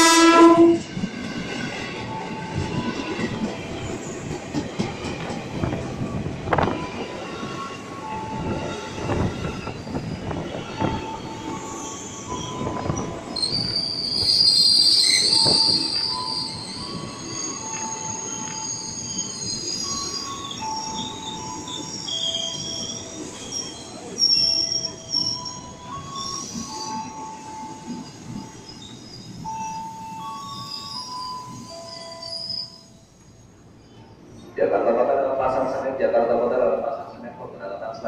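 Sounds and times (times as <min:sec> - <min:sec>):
train horn: 0:00.0 - 0:00.9
train wheels clunking over rails: 0:00.8 - 0:06.8
wheels and brakes squealing: 0:08.6 - 0:33.1.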